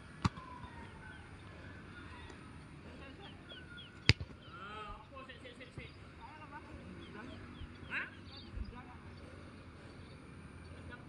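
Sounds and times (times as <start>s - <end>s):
football being kicked: 4.0s - 4.4s.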